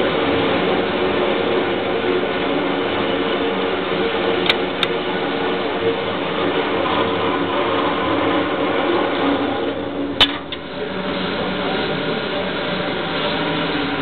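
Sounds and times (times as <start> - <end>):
target carrier motor running: 0.0 - 14.0.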